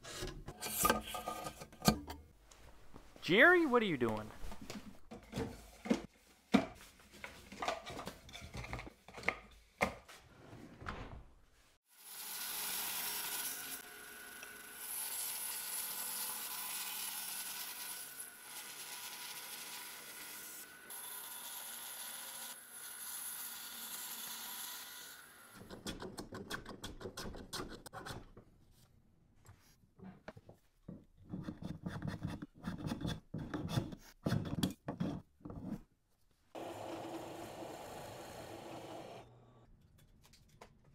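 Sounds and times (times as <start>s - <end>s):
bandsaw cutting wood: 36.6s - 39.2s.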